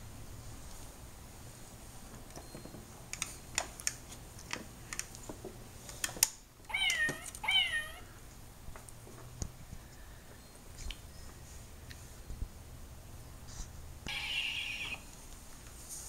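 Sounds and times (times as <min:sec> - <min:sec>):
short high squeaky calls: 0:14.1 - 0:15.1.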